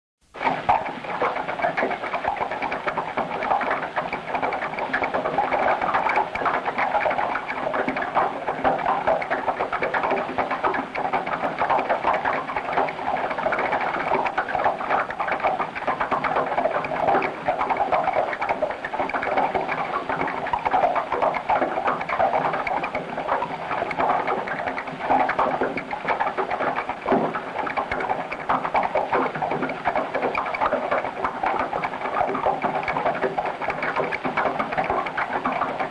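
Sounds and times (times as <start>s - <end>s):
crackling rush of noise: 0.3s - 35.9s.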